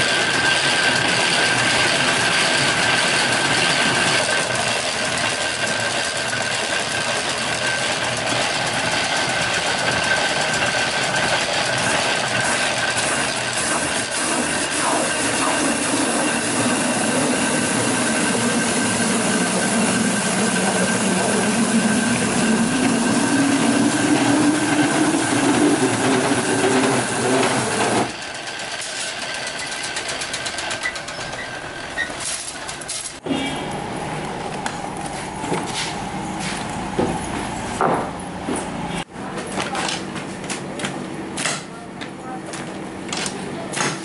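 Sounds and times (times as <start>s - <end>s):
veneer lathe running: 0.0s - 32.8s.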